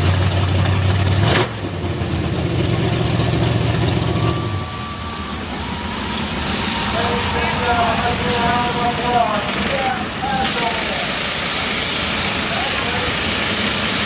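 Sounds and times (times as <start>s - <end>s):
engine idling: 0.0s - 14.0s
water jets hissing: 6.3s - 14.0s.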